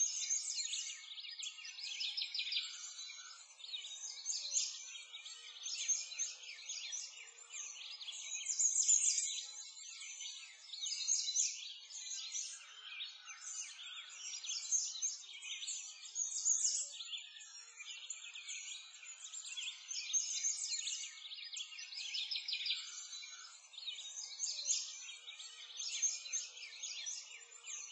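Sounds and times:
many small birds chirping: 0.0s - 27.9s.

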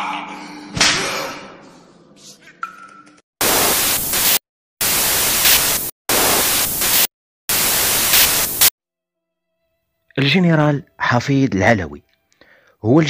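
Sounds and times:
tv static hiss: 3.4s - 8.7s.

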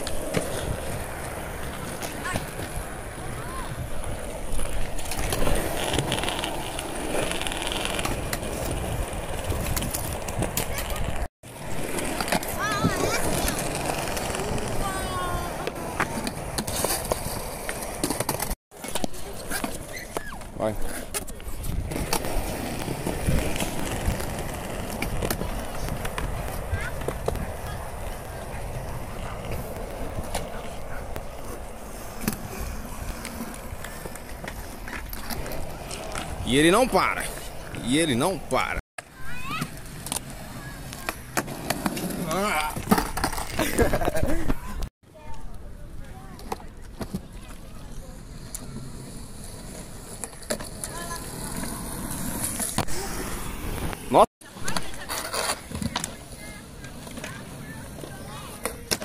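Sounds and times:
skateboard clacks: 0.0s - 36.4s, 48.3s - 59.0s
skateboard wheels rolling on concrete: 0.0s - 59.0s.

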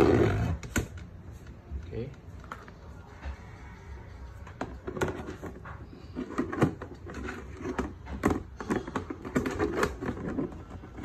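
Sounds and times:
plastic box clicks and knocks: 6.2s - 11.0s.

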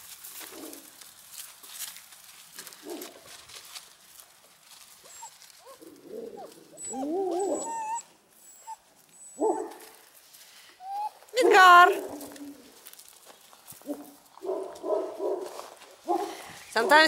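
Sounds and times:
puppies whining and yelping: 5.0s - 9.9s, 10.8s - 12.8s.

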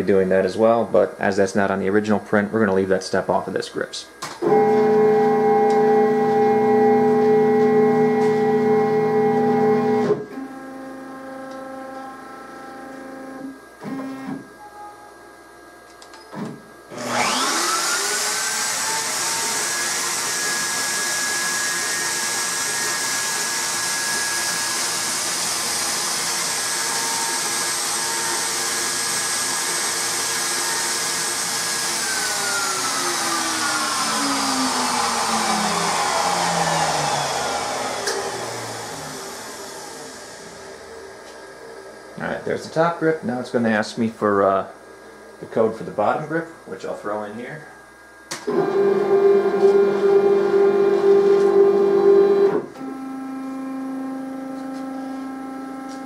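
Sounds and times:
stepper motors whining: 4.4s - 10.3s, 16.9s - 42.2s
router spindle whine: 4.4s - 14.6s, 16.9s - 42.9s, 48.3s - 56.0s.

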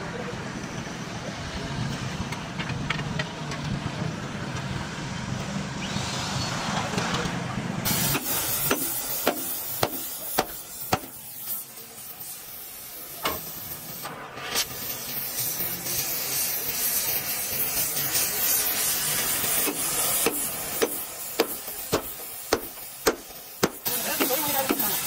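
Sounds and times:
loud hiss: 7.8s - 25.0s.

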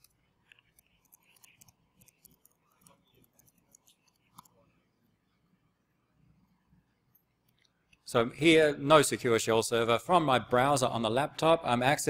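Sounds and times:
laptop keyboard typing: 0.0s - 4.6s.

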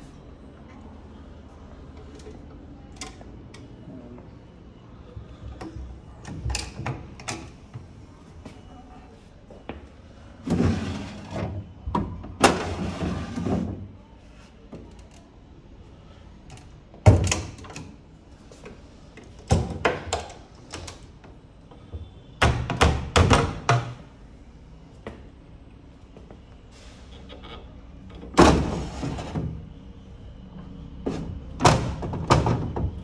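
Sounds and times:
wooden drawer scraping: 10.4s - 11.4s, 12.5s - 13.8s.

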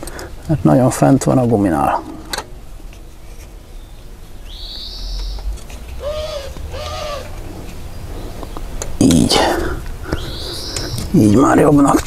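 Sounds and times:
dove cooing: 4.7s - 8.4s, 9.3s - 11.2s
high whistling call: 10.2s - 11.1s.

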